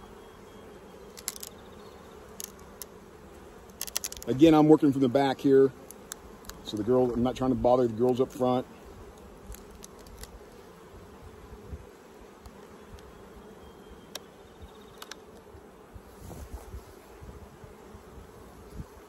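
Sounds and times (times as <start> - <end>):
bees buzzing: 0.0 - 19.0
hive tool clicks and cracks: 1.1 - 1.6, 2.3 - 3.0, 3.6 - 4.6, 5.8 - 6.9, 9.0 - 10.6, 14.9 - 15.5.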